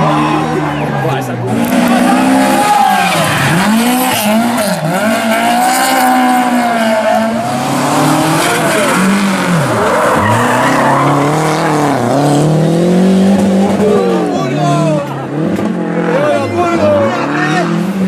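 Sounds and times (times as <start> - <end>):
car engine revving: 0.0 - 18.0
tyres screeching: 6.0 - 12.5.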